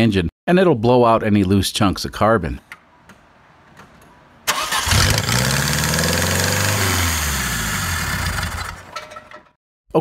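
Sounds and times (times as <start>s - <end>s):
car engine starting and idling: 2.8s - 9.0s
loud exhaust noise: 4.5s - 8.9s.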